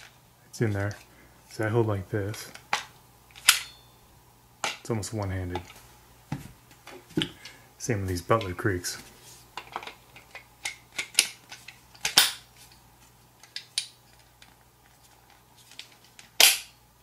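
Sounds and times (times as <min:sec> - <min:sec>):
loud magazine snaps: 0:12.0 - 0:12.4, 0:16.3 - 0:16.8.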